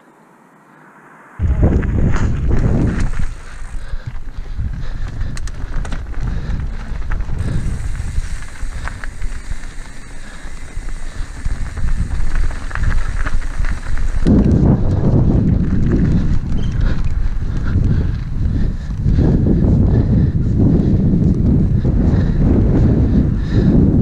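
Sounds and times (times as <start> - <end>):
bike tyres rumbling on cobblestones: 1.4 - 24.0
bike rattling clicks: 2.0 - 19.3.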